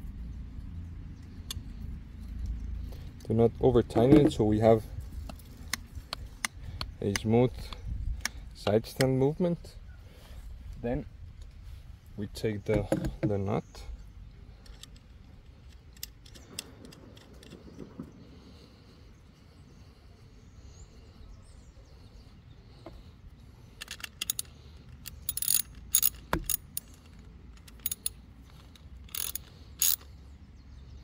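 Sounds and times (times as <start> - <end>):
handling metal bracket: 23.7 - 30.0
ratchet wrench clicking: 23.8 - 30.1.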